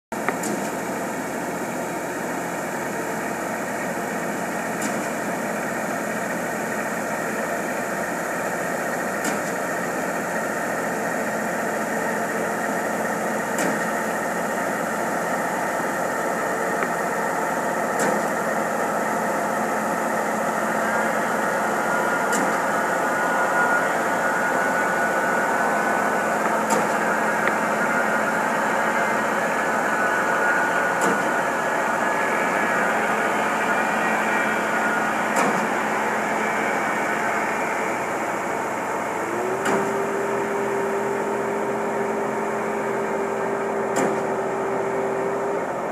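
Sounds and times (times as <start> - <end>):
construction machinery engines: 0.1 - 45.9.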